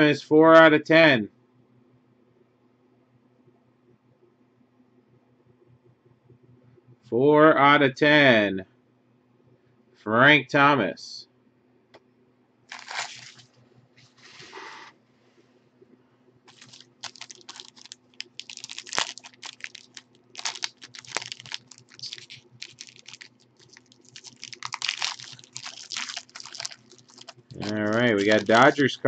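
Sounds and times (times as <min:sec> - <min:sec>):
foil wrapper crinkling: 0:12.7 - 0:13.5, 0:16.5 - 0:28.9.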